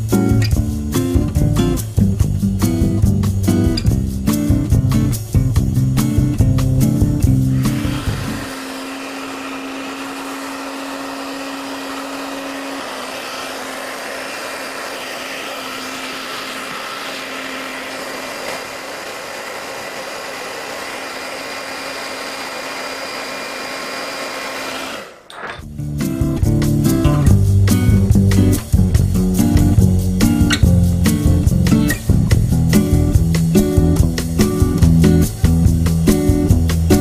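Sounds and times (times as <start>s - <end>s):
hot-air blower running: 7.2s - 25.5s.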